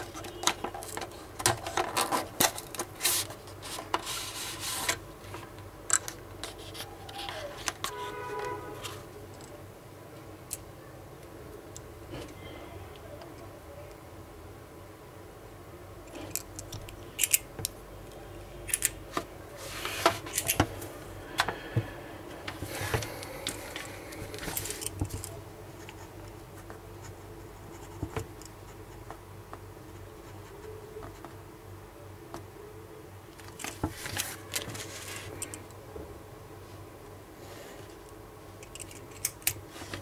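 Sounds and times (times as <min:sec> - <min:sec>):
paper rustling and scratching: 0:00.0 - 0:05.5, 0:06.4 - 0:09.1, 0:33.5 - 0:35.4.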